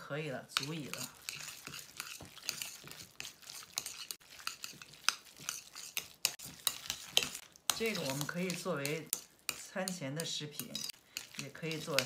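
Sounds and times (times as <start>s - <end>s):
utensil tapping bowl: 0.5s - 12.0s
wet sticky squelching: 0.9s - 9.6s.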